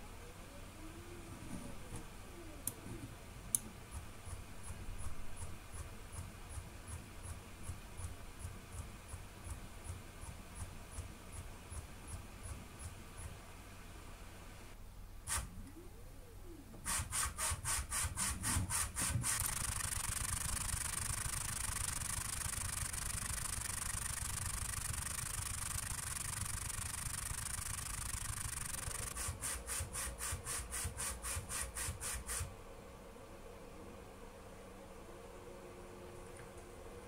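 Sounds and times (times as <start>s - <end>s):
low hum: 19.2s - 29.2s.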